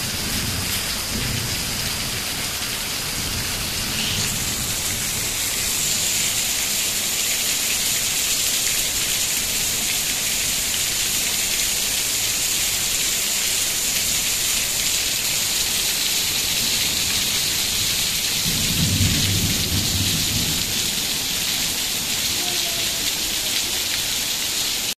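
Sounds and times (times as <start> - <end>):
thunder rumbling: 0.0 - 7.0, 16.5 - 23.4
heavy rain falling: 0.0 - 24.9.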